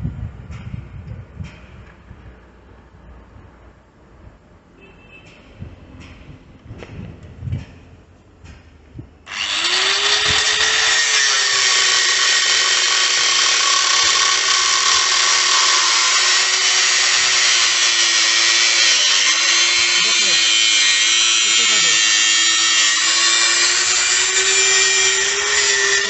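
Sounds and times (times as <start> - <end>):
angle grinder cutting steel: 9.3 - 26.0.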